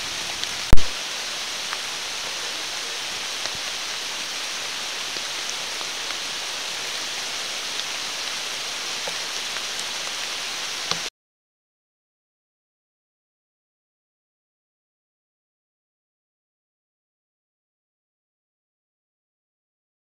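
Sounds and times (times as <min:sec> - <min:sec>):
steady rain hiss: 0:00.0 - 0:11.1
raindrop ticks: 0:00.2 - 0:01.0, 0:09.0 - 0:10.2, 0:10.8 - 0:11.1.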